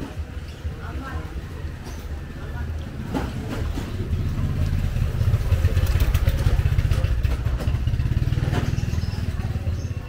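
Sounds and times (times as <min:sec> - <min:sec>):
motor scooter engine passing: 0:02.9 - 0:10.0.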